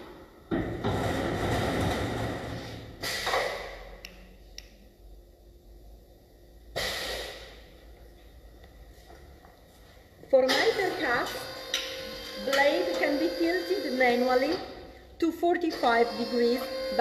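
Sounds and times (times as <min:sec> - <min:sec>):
pneumatic brake hissing: 0:06.8 - 0:07.5.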